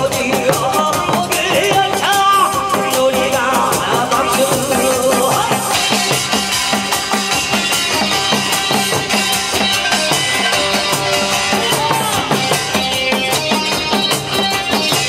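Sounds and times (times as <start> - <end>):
drums playing fast beat: 0.0 - 15.0.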